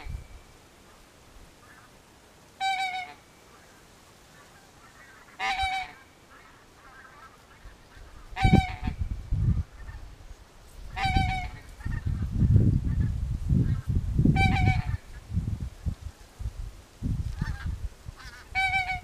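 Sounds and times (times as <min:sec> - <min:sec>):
goose honks: 0:02.6 - 0:03.7, 0:04.4 - 0:09.0, 0:10.9 - 0:12.3, 0:14.4 - 0:15.1, 0:17.4 - 0:19.0.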